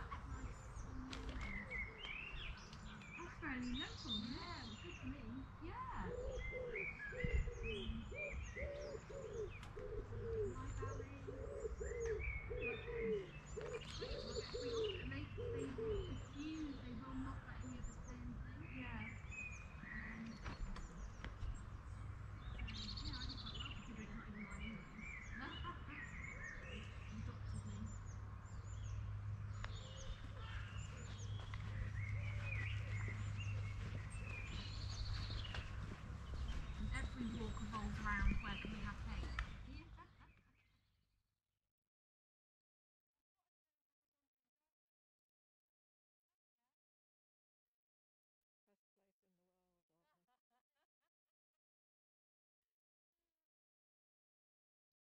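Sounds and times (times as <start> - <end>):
birds chirping and whistling: 0.0 - 40.4.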